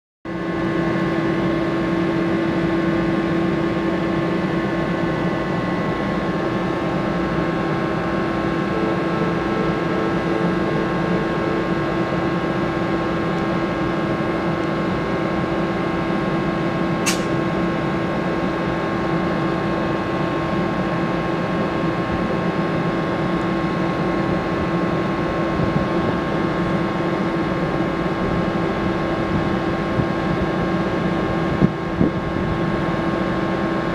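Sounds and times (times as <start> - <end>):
locomotive humming: 0.3 - 33.9
sharp click: 17.0 - 17.4.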